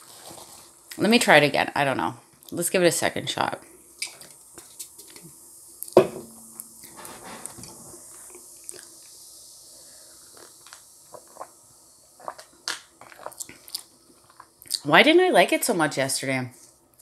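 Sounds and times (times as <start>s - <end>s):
sharp knock: 6.0s - 6.6s
sipping and swallowing: 10.3s - 11.6s, 12.2s - 14.8s.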